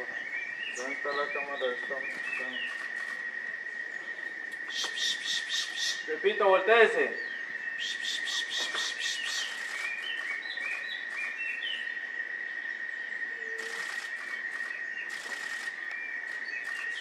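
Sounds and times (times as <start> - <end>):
birds chirping: 0.0 - 17.0
high insect drone: 0.0 - 17.0
rapid dry pulses: 13.6 - 17.0.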